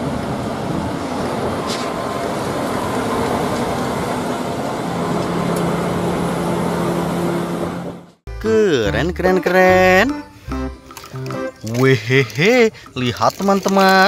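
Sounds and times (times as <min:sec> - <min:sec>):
diesel truck engine running: 0:00.0 - 0:10.8.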